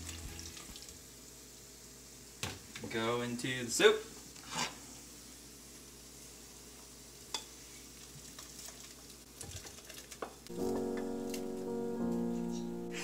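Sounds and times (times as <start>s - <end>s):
background music: 0.0s - 0.9s, 10.5s - 13.0s
soup simmering sizzle: 0.0s - 2.8s, 4.2s - 12.2s.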